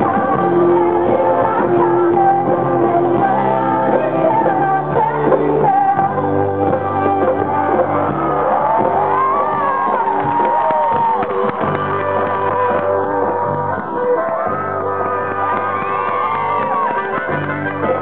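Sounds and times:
woman singing: 0:00.0 - 0:07.9
electric guitars: 0:00.0 - 0:18.0
live rock band playing: 0:00.0 - 0:18.0.

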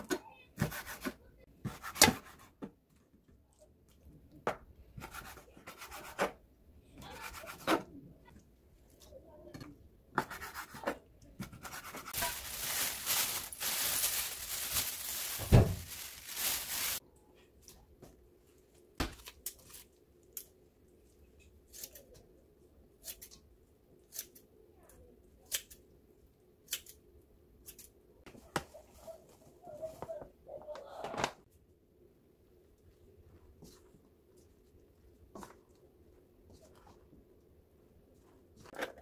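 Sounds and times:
thump: 0:15.4 - 0:15.8.

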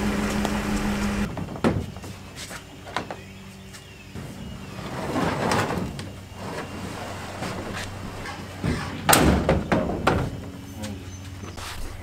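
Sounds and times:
plastic kayak scraping and sliding: 0:04.5 - 0:09.0.

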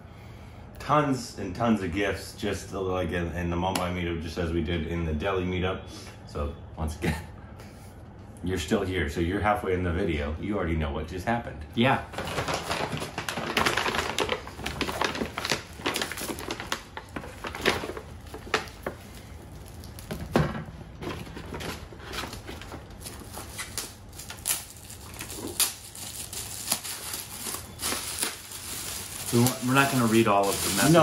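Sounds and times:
wrapping paper rustling and crinkling: 0:12.0 - 0:31.0.

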